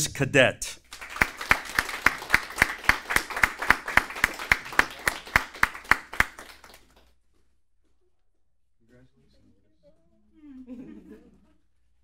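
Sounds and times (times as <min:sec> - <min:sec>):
loud even hand claps: 0:00.8 - 0:07.1
audience applause: 0:00.9 - 0:07.0.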